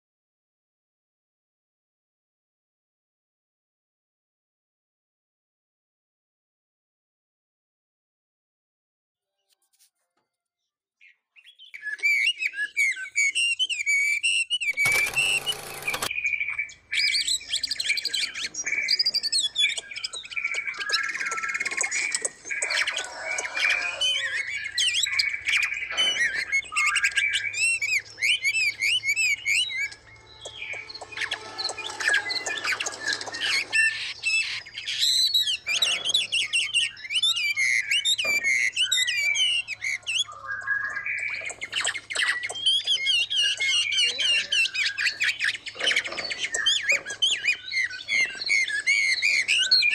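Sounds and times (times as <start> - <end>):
songbirds chirping: 15.4 - 49.9.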